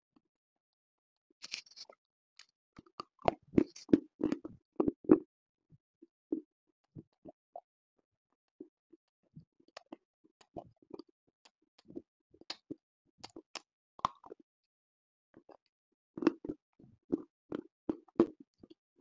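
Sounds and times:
crunching chewing of hard chunk: 0:02.8 - 0:05.2.

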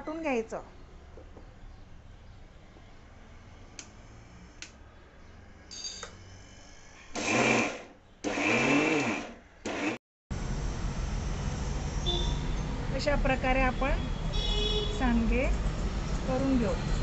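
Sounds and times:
electric mixer grinder grinding: 0:07.1 - 0:11.5.

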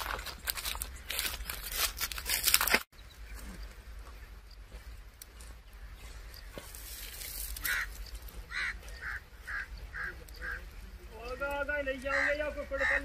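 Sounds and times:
lapwing calling: 0:05.7 - 0:13.0.

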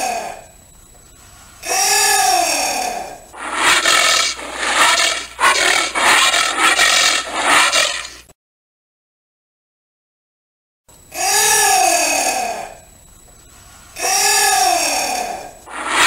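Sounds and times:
anteater rasping calls: 0:03.4 - 0:08.2, 0:15.7 - 0:16.0.

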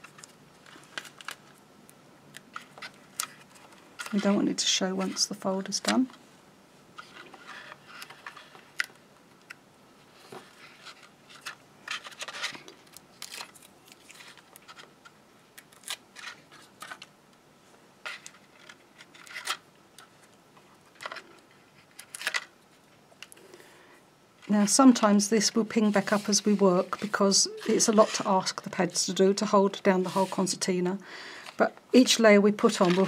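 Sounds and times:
card rustling: 0:02.4 - 0:06.2, 0:10.1 - 0:17.1, 0:24.6 - 0:29.1, 0:29.9 - 0:30.6, 0:32.6 - 0:33.0.

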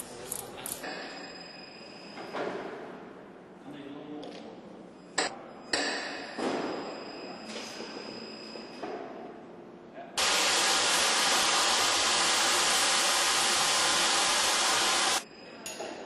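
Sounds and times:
compressed air hissing: 0:10.2 - 0:15.2.

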